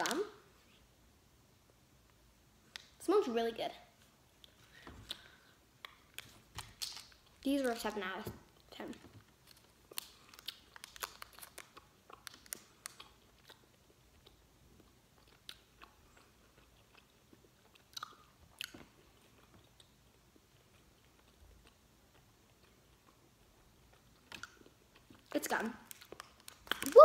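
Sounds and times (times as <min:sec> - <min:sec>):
candy wrapper crinkling: 0:05.1 - 0:08.0, 0:08.6 - 0:14.3, 0:24.0 - 0:27.0.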